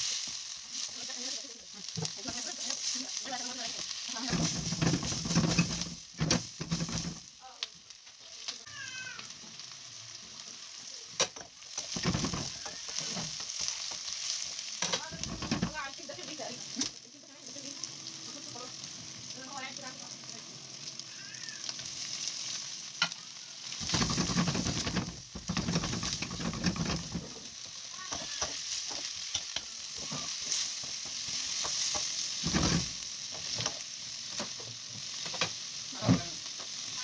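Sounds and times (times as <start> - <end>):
wooden spatula scraping wok: 0.0 - 7.3, 11.7 - 16.9, 21.8 - 37.0
food sizzling in a wok: 0.0 - 37.0.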